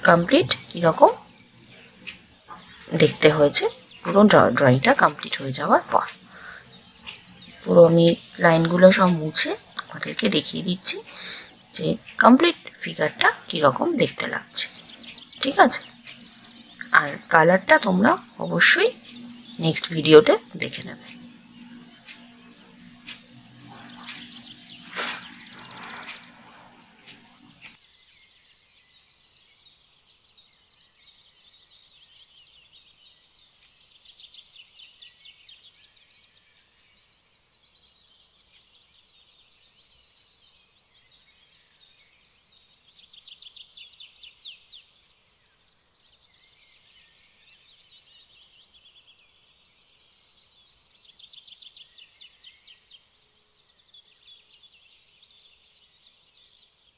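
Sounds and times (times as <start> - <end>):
high-pitched pulsed chirping trills: 0.0 - 27.8
rustle with a knock: 24.0 - 26.4.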